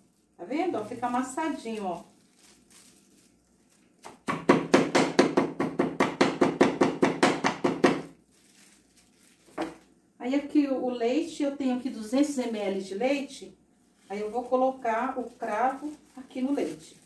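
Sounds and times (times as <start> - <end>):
knocks on cloth-covered wooden board: 4.2 - 8.0.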